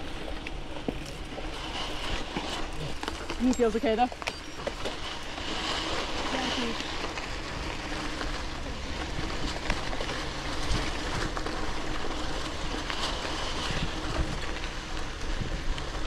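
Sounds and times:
bike clicking and rattling: 0.0s - 16.0s
bike tyres rumbling on dirt road: 0.0s - 16.0s.

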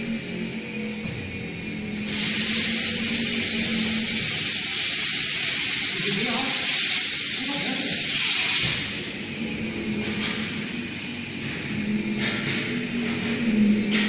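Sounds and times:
fryer basket lift hissing: 1.9s - 11.7s.

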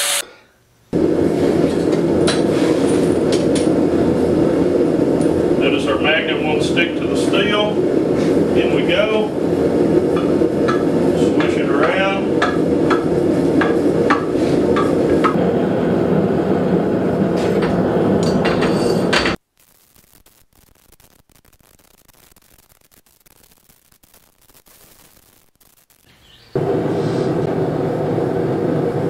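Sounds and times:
forge burner roaring: 0.9s - 19.4s, 26.5s - 29.0s.

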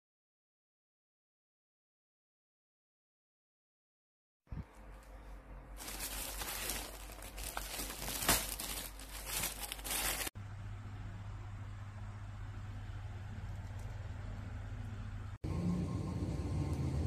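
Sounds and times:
steady low hum: 4.5s - 17.0s
plastic wrapping crinkling: 5.8s - 10.4s.

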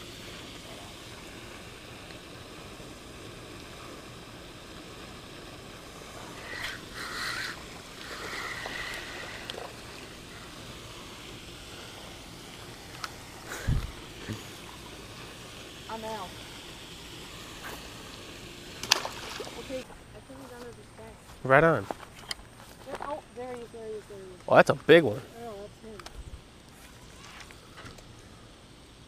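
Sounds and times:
rustling and whirring: 0.0s - 24.5s, 25.3s - 28.9s
outdoor background hiss: 0.0s - 29.0s.

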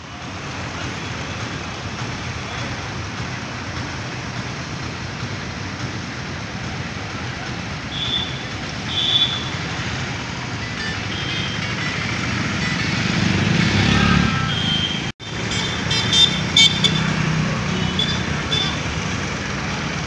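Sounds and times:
traffic hissing on wet road: 0.0s - 20.0s
vehicle passing loudly: 9.5s - 20.0s.

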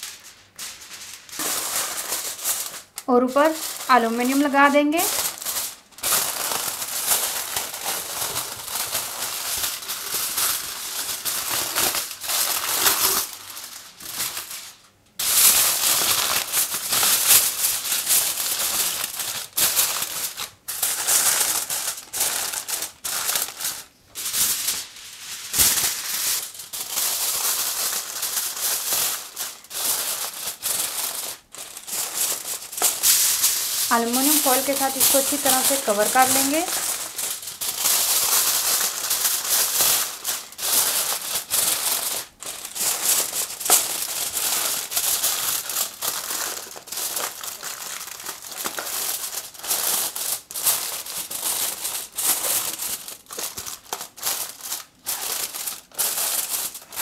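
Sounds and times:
aluminium foil crinkling: 0.0s - 57.0s.

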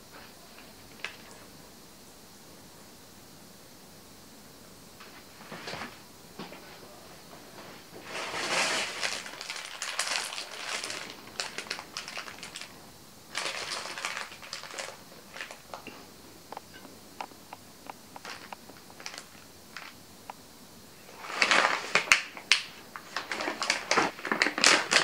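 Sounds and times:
plastic packaging crinkling: 8.0s - 15.9s, 18.2s - 20.0s, 21.1s - 25.0s.

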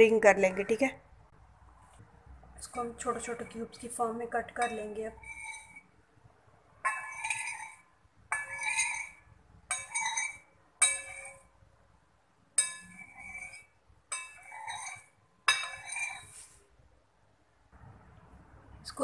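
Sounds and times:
spoon clinking ceramic bowl: 4.6s - 5.8s, 6.8s - 11.5s, 12.6s - 16.3s.

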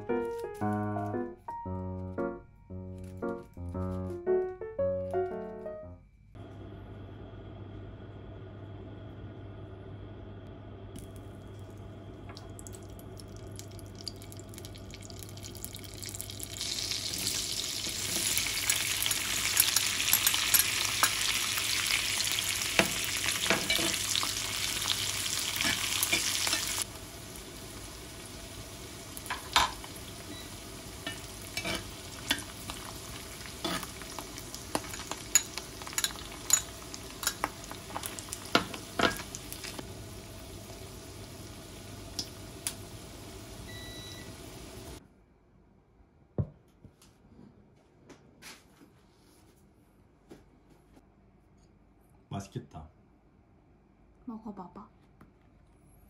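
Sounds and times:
oil sizzling in skillet: 12.3s - 45.0s.

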